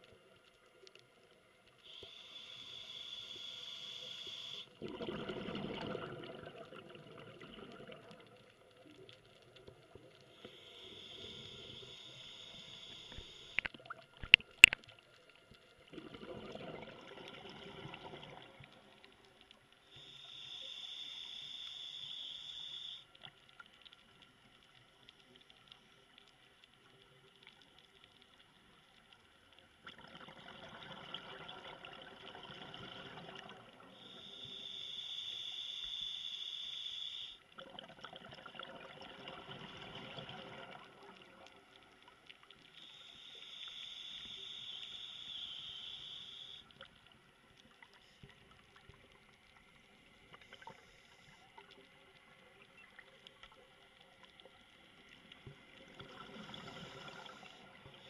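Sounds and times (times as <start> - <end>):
regulator breathing hiss: 1.8 - 4.8, 10.2 - 13.6, 19.8 - 23.2, 33.8 - 37.4, 42.7 - 46.8
bubbly exhalations: 4.8 - 8.1, 15.9 - 18.4
faint clicks: 7.5 - 16.0, 39.6 - 58.0.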